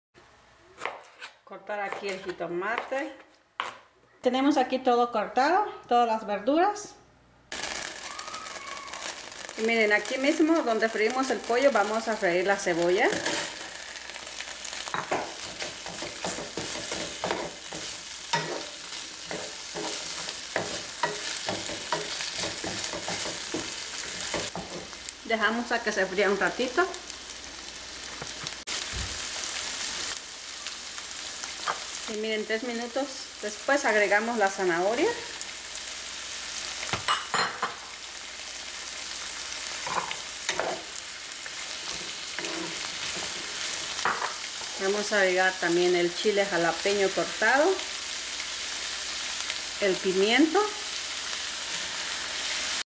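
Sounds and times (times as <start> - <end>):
onions sizzling in a frying pan: 7.5 - 52.9
wooden spoon scraping a pan: 13.1 - 25.0, 41.5 - 44.8
wooden spoon knocking and scraping: 14.9 - 18.7.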